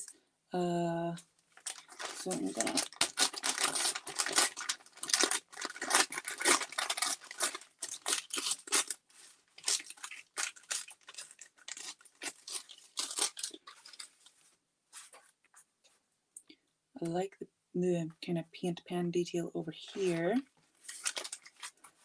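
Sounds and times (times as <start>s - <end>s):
thin paper crinkling and rustling: 1.5s - 15.4s, 19.9s - 22.0s.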